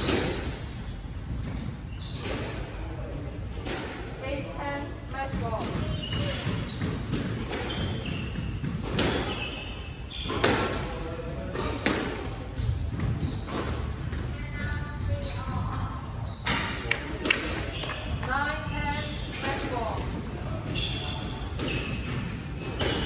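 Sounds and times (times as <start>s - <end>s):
shoes squeaking on wooden floor: 0.0s - 2.6s, 5.2s - 11.0s, 11.6s - 14.2s, 20.6s - 23.0s.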